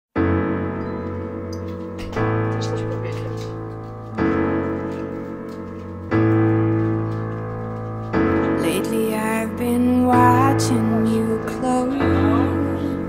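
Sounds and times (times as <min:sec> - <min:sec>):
slow piano chords: 0:00.2 - 0:13.0.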